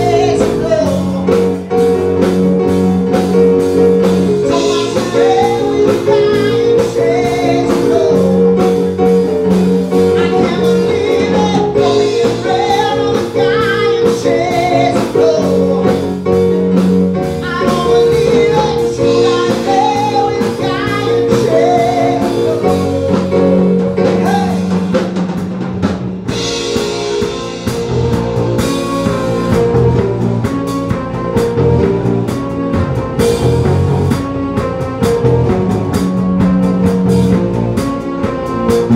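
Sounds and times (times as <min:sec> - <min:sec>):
male lead vocal: 0:00.0 - 0:01.9, 0:04.4 - 0:09.1, 0:09.9 - 0:16.7, 0:17.4 - 0:25.0
drum kit beat: 0:00.0 - 0:38.9
electric bass: 0:00.0 - 0:38.9
keyboard: 0:00.0 - 0:38.9.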